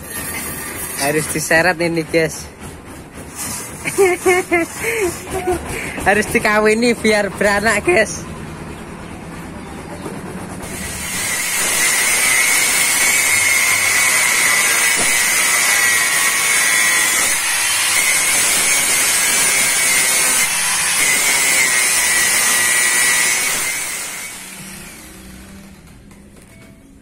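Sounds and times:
angle grinder cutting metal: 0.0s - 1.8s, 3.3s - 6.6s, 10.6s - 25.8s.

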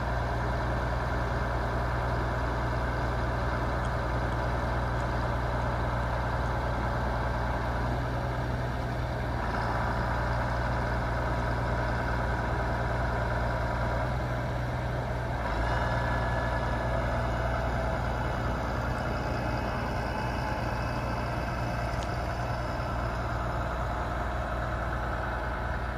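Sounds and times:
tractor diesel engine running: 0.0s - 25.9s.

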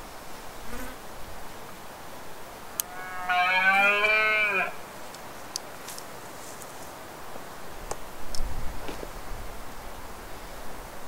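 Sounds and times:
deer stag roaring: 2.8s - 4.8s.

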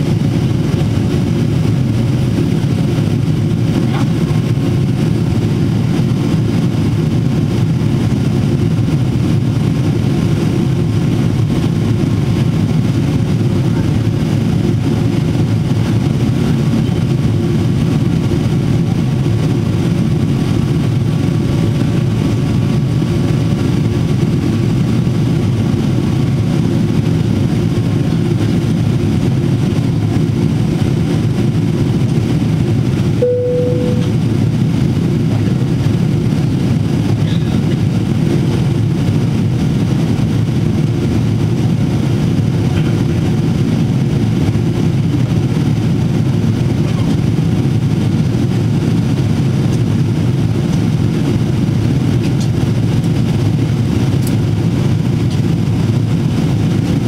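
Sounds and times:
airplane cabin engine rumble: 0.0s - 57.0s
faint steady hum: 33.2s - 34.4s.

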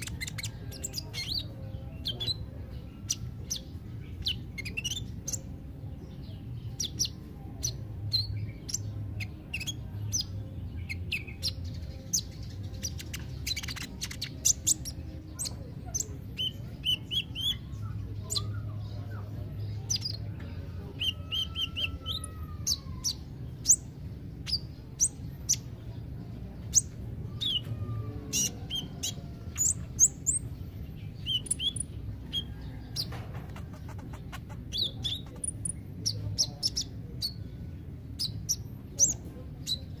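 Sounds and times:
sunbird chirping and trilling: 0.0s - 20.3s, 20.9s - 40.0s.

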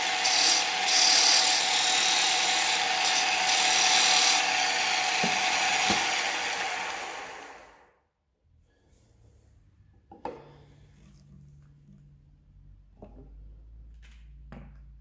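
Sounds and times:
tool scraping spinning wood: 0.0s - 7.7s
wood lathe motor hum: 0.0s - 7.8s.

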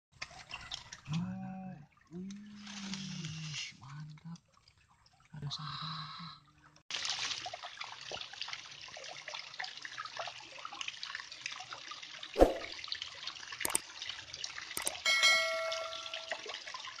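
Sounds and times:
water splashing and trickling: 0.1s - 17.0s
short clicks: 14.8s - 15.0s.

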